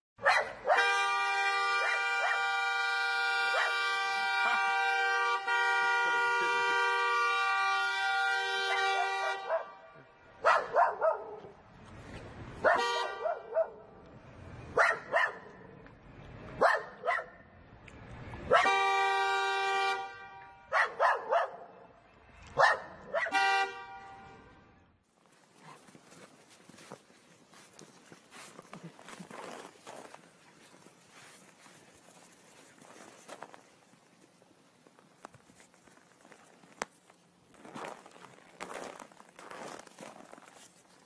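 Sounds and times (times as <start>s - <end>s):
dog barking: 0.2s - 0.9s, 1.8s - 2.5s, 3.5s - 3.8s, 8.6s - 9.8s, 10.4s - 11.5s, 12.6s - 13.9s, 14.8s - 15.6s, 16.6s - 17.4s, 20.7s - 21.8s, 22.6s - 23.4s
car horn blast: 0.7s - 10.2s, 12.8s - 13.4s, 18.5s - 20.7s, 23.3s - 24.8s.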